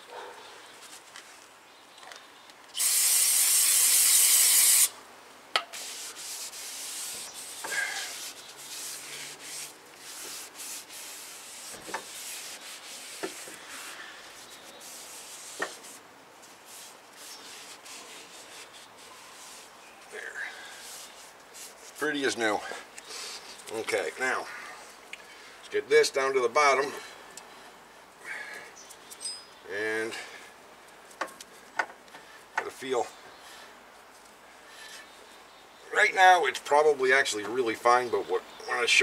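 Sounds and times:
aerosol can spraying: 2.8 - 4.9
rag wiping metal: 5.6 - 22.3.

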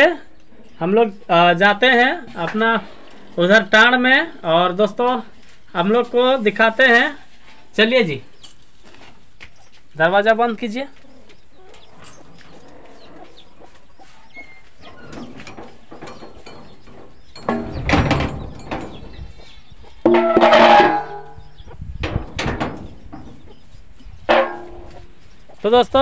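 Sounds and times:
metal door and bolt clattering: 14.8 - 19.3, 20.1 - 23.5.

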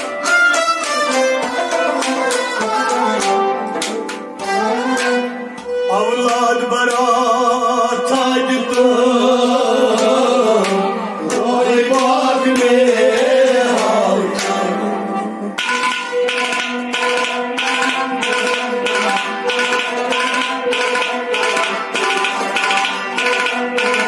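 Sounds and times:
harmonium: 0.0 - 24.0
man singing: 5.8 - 15.6.

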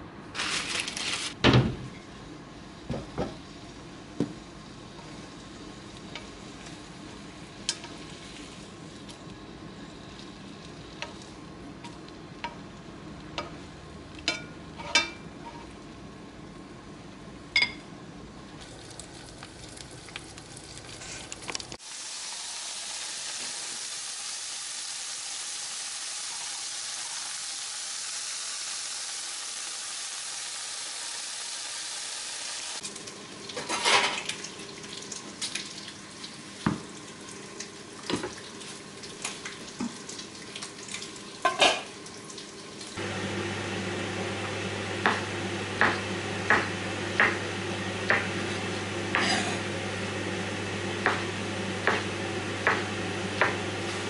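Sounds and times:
bacon sizzling in frying pan: 2.8 - 14.2, 18.6 - 43.6
knife chopping on wooden board: 45.0 - 47.4, 51.8 - 53.6.

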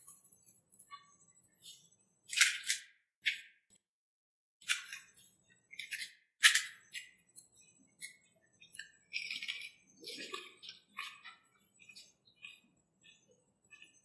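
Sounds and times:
wet chewing and mouth sounds: 6.8 - 14.0.

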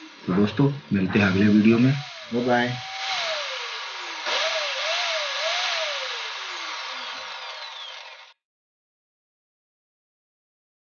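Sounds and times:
chop saw motor whine: 0.0 - 8.4.

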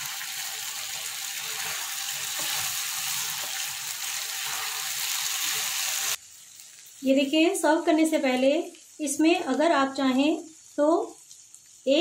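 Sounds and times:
potatoes sizzling in a pan: 0.0 - 12.0.

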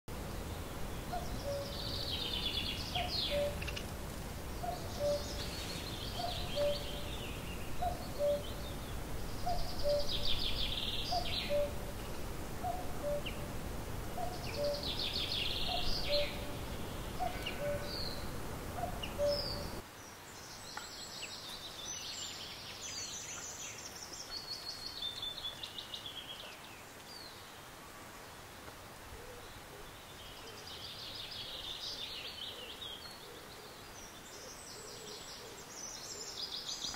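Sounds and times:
low background noise: 0.1 - 36.9
songbirds trilling: 0.4 - 27.7.

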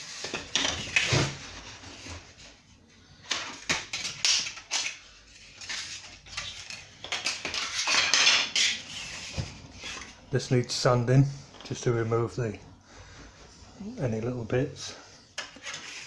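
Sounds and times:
edging strip rustling and scraping: 4.0 - 10.3, 15.4 - 16.0.

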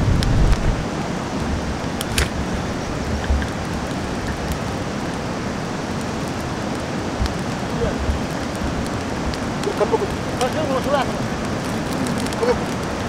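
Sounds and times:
wind buffeting microphone: 0.0 - 13.0
sharp clicks: 2.0 - 2.4.

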